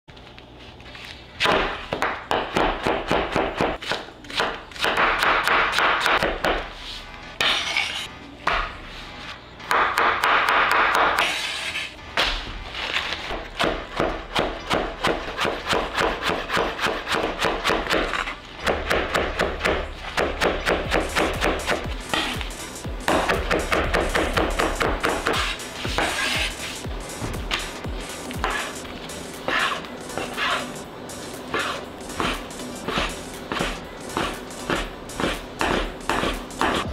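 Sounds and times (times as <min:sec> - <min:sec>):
knife chopping on cutting board: 0:01.4 - 0:06.7, 0:13.6 - 0:22.4, 0:23.1 - 0:26.6, 0:28.4 - 0:28.8, 0:31.5 - 0:36.9.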